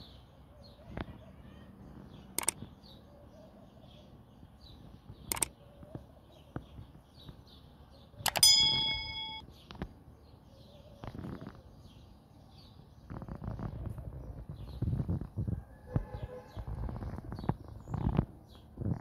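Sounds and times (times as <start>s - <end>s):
birds chirping: 0.0s - 19.0s
mouse click sound effect: 5.3s - 5.5s, 8.3s - 9.4s
bell ding: 8.3s - 9.4s.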